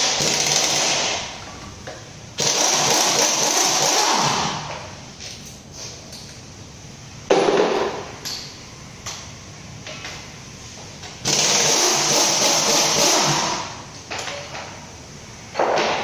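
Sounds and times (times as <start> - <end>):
power wrench running: 0.0 - 1.3, 2.4 - 4.7, 11.2 - 13.8.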